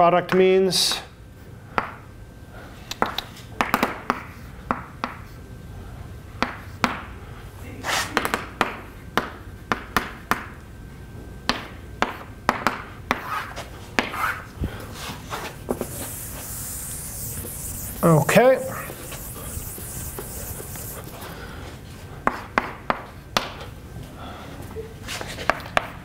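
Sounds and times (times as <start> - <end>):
chalk scratching on blackboard: 15.7 - 21.4
chalk tapping on blackboard: 15.7 - 21.4.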